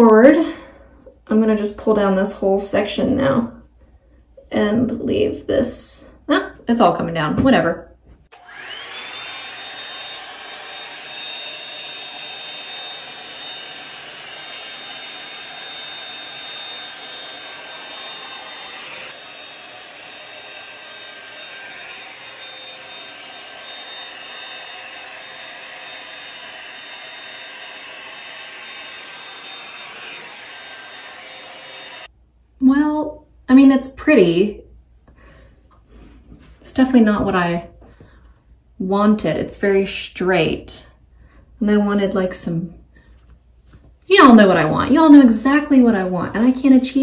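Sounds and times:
hot-air brush blowing with whine: 8.3s - 32.1s.

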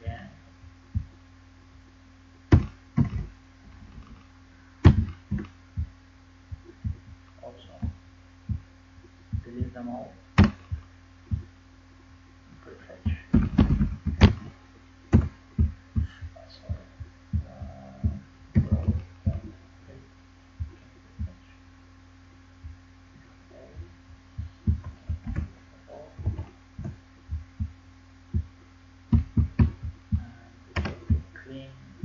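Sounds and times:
electrical hum: 0.0s - 32.0s.

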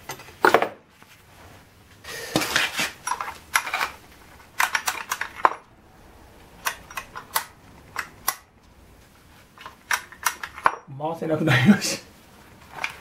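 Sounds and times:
metal parts clinking in a vise: 2.6s - 4.0s, 4.6s - 5.7s, 6.6s - 8.4s.

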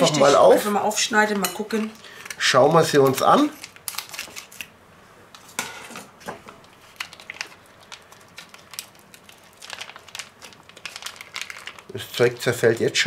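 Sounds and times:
plastic crinkling: 2.9s - 5.6s, 6.2s - 13.0s
knife slitting plastic pack: 3.5s - 4.7s.

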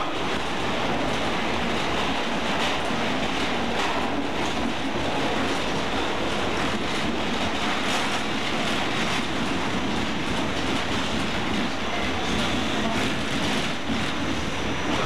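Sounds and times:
subway car rumble and rattle: 0.0s - 15.0s.

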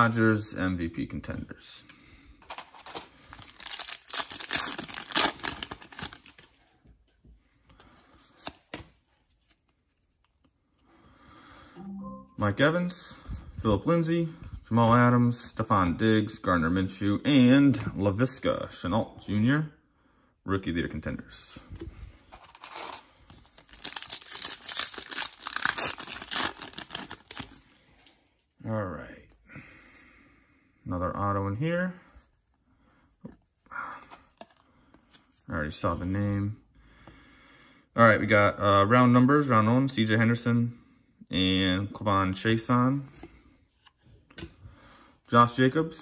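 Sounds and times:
plastic foil wrapper tearing and crinkling: 2.4s - 6.5s, 22.5s - 27.6s
cards rustling: 2.4s - 6.7s, 7.6s - 11.3s, 22.2s - 28.2s.

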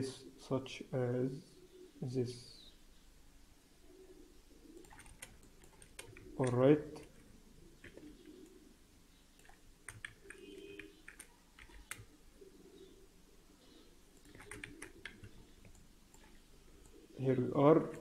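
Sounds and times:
computer keyboard and mouse clicks: 4.8s - 7.2s, 7.8s - 8.2s, 9.4s - 12.1s, 14.2s - 17.0s.

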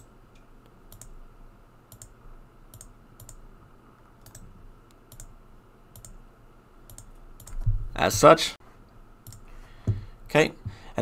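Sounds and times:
computer mouse clicks: 0.0s - 1.2s, 1.9s - 3.4s, 4.2s - 6.2s, 6.9s - 7.7s, 9.2s - 9.5s.

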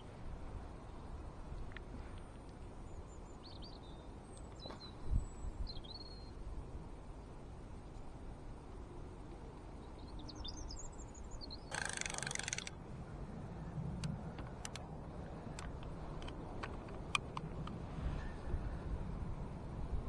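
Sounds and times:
fishing reel clicking: 11.7s - 12.8s
fishing reel rasp: 11.7s - 12.8s.

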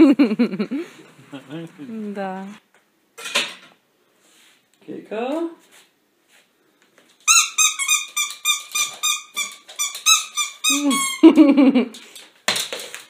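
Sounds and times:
squeaky ball toy squeaking: 7.3s - 11.2s.

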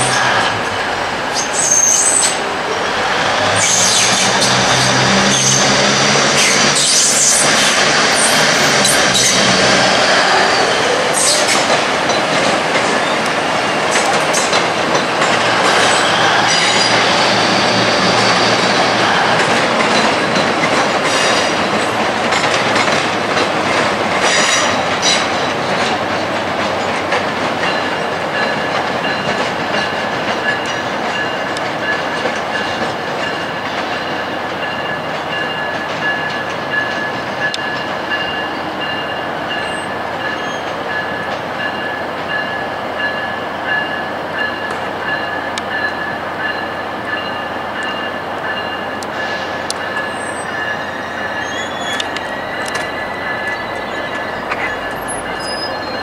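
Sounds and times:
train rumbling: 0.0s - 56.0s
wheels clacking over rail joints: 0.0s - 56.0s
high-pitched wheel squeal: 1.4s - 2.4s, 50.0s - 56.0s.

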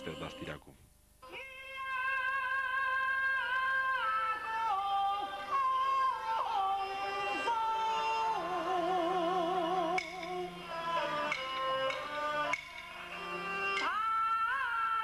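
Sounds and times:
high voice opera singing: 1.2s - 9.7s.

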